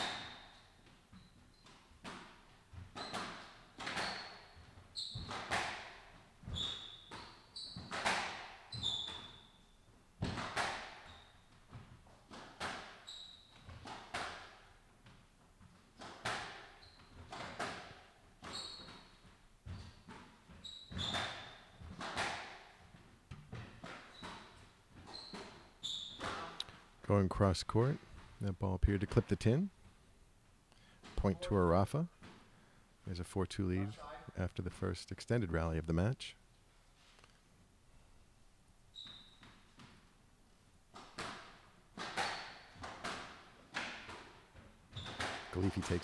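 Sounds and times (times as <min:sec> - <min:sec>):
racket hitting squash ball: 0:00.0 - 0:09.6, 0:10.2 - 0:26.8, 0:40.9 - 0:46.0
shoes squeaking on wooden floor: 0:00.0 - 0:14.2, 0:15.0 - 0:26.8, 0:38.9 - 0:40.0, 0:41.0 - 0:46.0.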